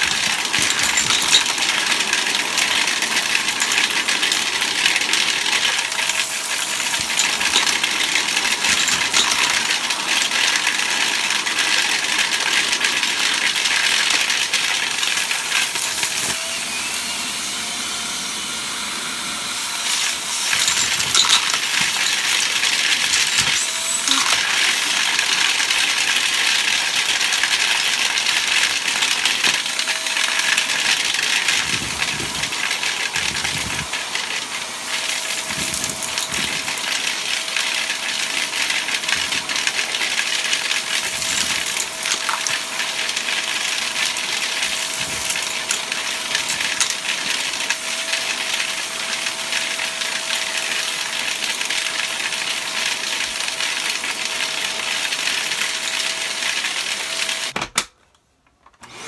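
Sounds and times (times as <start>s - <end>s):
debris rattling through hose: 0.0s - 16.4s, 19.8s - 48.6s
vacuum cleaner running: 0.0s - 57.6s, 58.8s - 59.0s.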